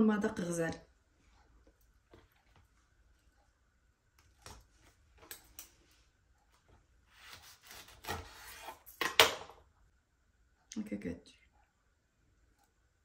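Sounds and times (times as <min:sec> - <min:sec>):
knife sawing through a wrap: 0:07.1 - 0:08.8.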